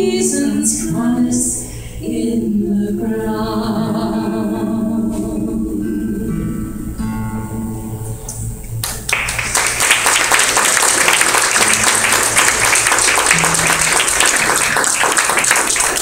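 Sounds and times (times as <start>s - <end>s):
acoustic guitar chord ringing: 5.8s - 8.8s, 13.2s - 14.9s
audience applauding: 8.8s - 16.0s.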